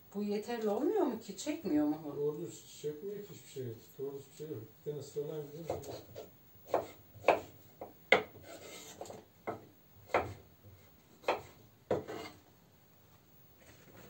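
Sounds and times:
knife scraping: 5.4s - 7.5s, 8.1s - 9.3s, 11.2s - 12.4s
knife knocking on cutting board: 6.7s - 10.4s.

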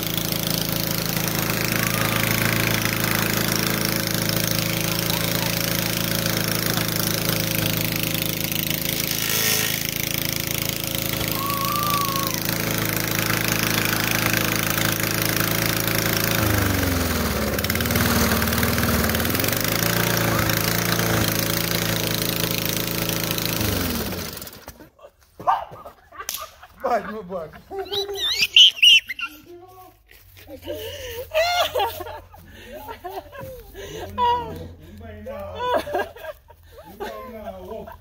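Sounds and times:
lawn mower engine running: 0.0s - 24.8s.

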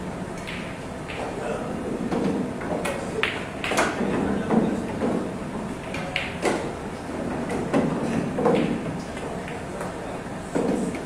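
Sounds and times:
billiard balls clacking: 0.4s - 11.0s.

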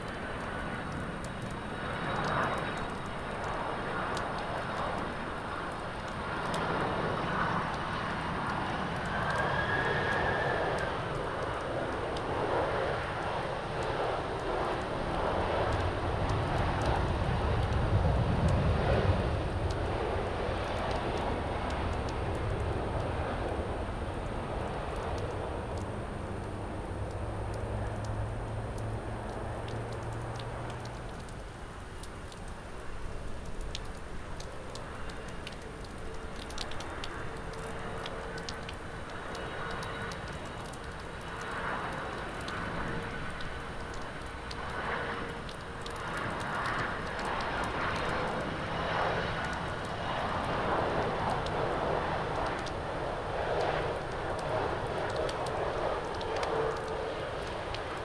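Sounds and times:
jet engine whine: 0.0s - 58.0s
jet engine rushing roar: 6.4s - 26.8s.

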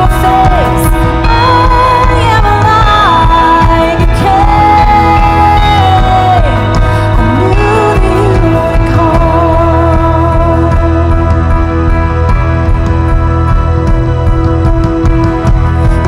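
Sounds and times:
singer holding long notes: 0.0s - 12.6s
worship band playing slow song: 0.0s - 16.0s.

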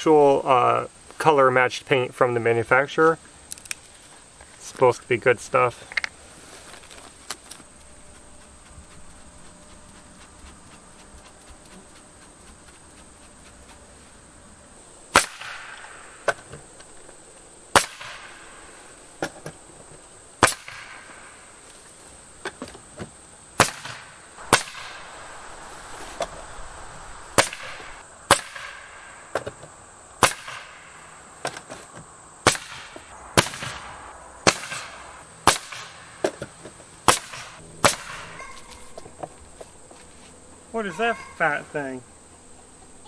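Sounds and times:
nail gun firing: 15.2s - 15.8s, 17.8s - 18.3s, 20.4s - 21.0s, 23.6s - 24.9s, 28.3s - 28.8s, 30.2s - 30.7s, 32.5s - 33.8s, 34.5s - 35.9s, 37.1s - 38.2s
air hissing: 23.6s - 29.4s.

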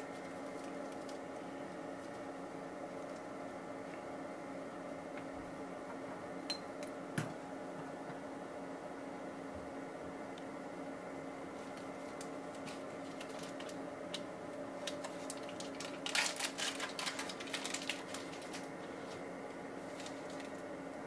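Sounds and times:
steady low hum: 0.0s - 21.0s
wrapper crinkling and crackling: 11.7s - 19.2s, 19.9s - 20.7s.

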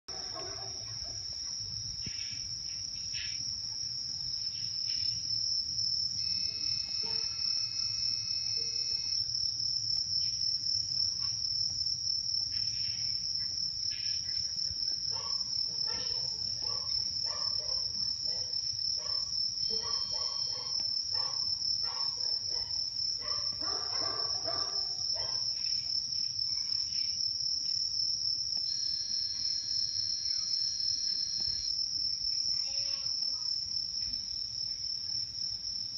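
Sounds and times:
crickets chirping: 0.1s - 35.9s
faint held tone: 6.1s - 9.2s, 28.6s - 31.8s.

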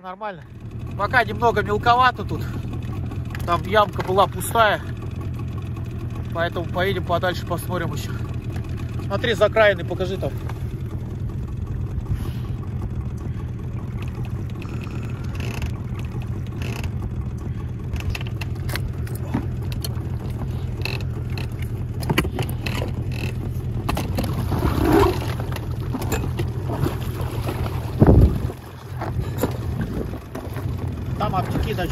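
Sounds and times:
outboard engine running: 0.0s - 31.9s
knocks and rattles: 17.9s - 31.9s.

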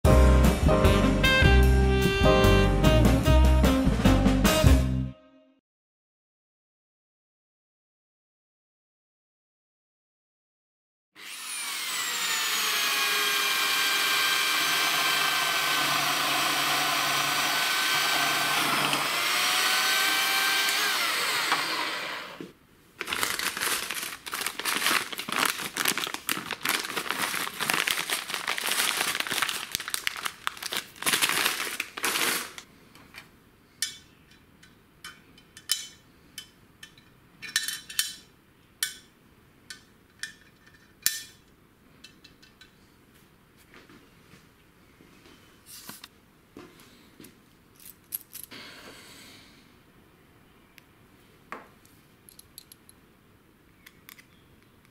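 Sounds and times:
drill press motor running: 11.2s - 22.4s
plastic bag crinkling and rattling: 23.0s - 32.7s
small metallic clicks: 52.3s - 53.0s.

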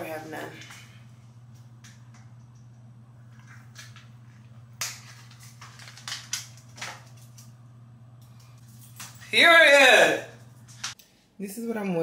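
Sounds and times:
steady low hum: 0.0s - 9.3s.

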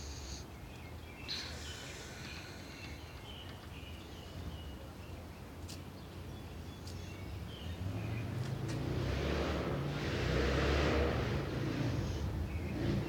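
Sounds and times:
birds chirping: 0.0s - 8.4s.

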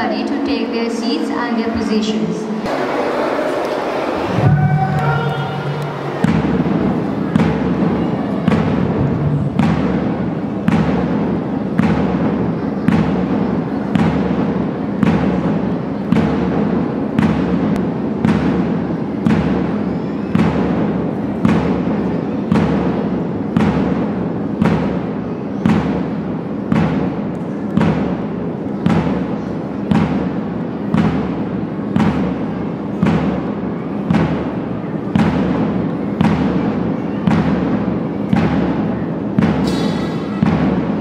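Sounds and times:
slow processional march music: 4.2s - 6.8s.

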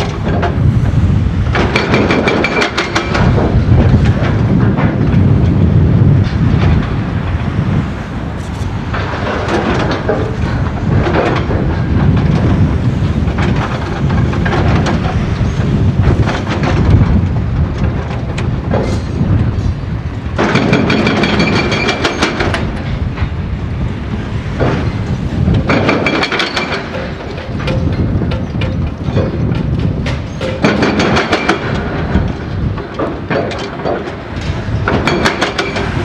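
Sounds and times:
hydraulic breaker hammering concrete: 20.4s - 22.6s.

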